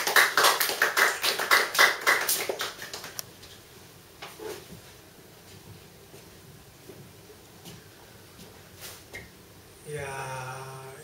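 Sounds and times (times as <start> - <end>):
audience clapping: 0.0 - 3.2.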